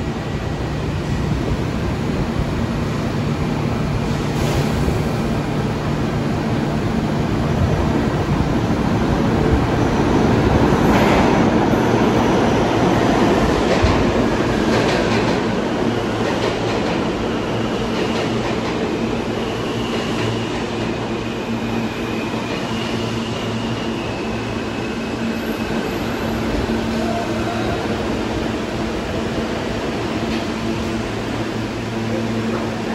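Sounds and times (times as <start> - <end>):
subway wheels clacking over rail joints: 9.3 - 21.2.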